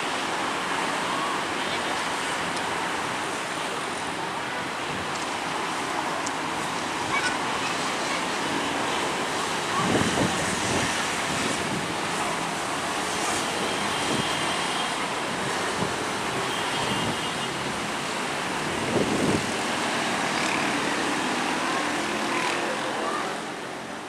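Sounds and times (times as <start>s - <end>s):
road traffic rushing: 0.0s - 24.0s
wind on microphone: 9.6s - 12.2s, 18.5s - 19.8s.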